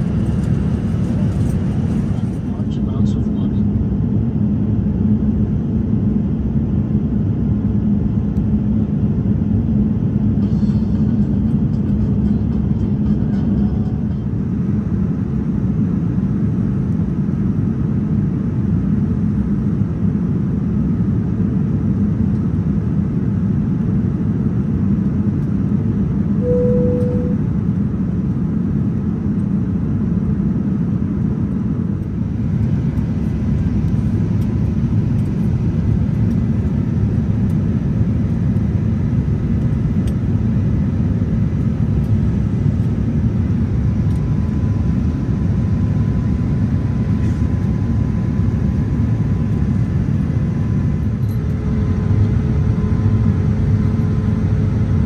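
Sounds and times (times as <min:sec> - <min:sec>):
airliner low rumble: 0:00.0 - 0:55.0
single tone: 0:26.4 - 0:27.5.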